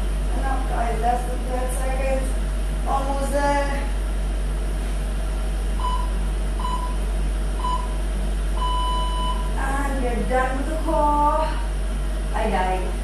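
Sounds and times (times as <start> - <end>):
steady low hum: 0.0 - 13.0
long timer beep: 5.8 - 7.0, 8.6 - 9.5.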